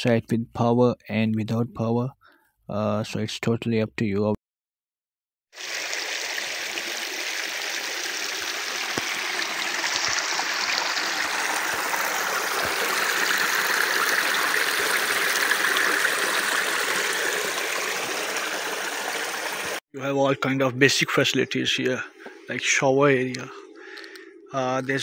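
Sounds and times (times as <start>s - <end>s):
creek running over rocks: 5.6s - 19.8s.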